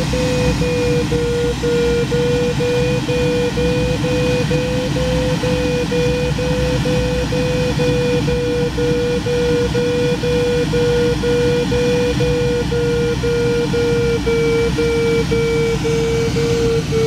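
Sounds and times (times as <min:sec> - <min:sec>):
variometer beeping: 0:00.0 - 0:17.0.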